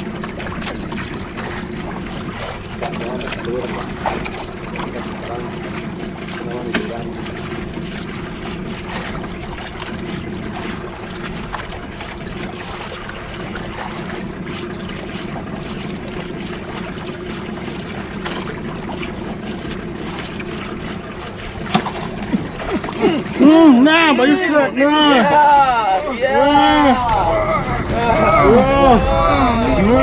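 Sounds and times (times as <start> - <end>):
boat engine humming: 0.0 - 30.0
wind noise on microphone: 26.3 - 30.0.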